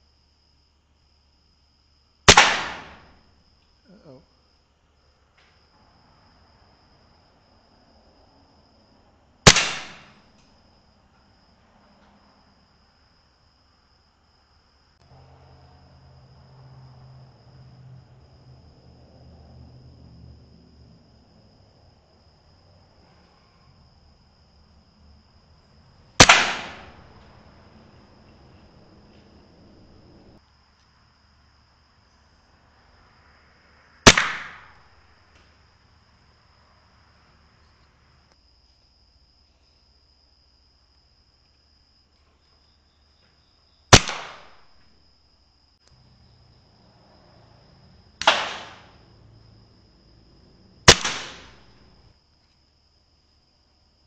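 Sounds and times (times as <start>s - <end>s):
air rifle shot crack: 2.3s - 3.2s, 9.5s - 10.3s, 26.2s - 27.3s, 34.1s - 34.8s, 43.9s - 44.7s, 48.2s - 49.0s, 50.9s - 51.7s.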